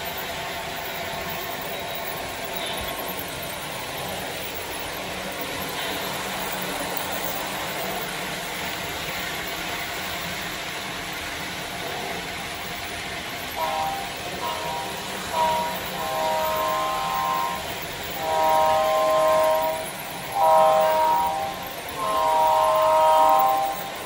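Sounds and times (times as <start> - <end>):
model locomotive horn: 0.0 - 8.2, 13.4 - 24.0
model train rolling rumble: 0.0 - 24.0.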